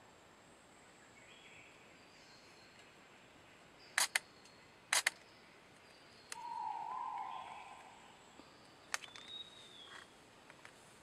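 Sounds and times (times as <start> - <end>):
rainforest ambience: 0.0 - 11.0
sharp clicks: 4.0 - 4.3, 4.9 - 5.2, 8.9 - 9.4.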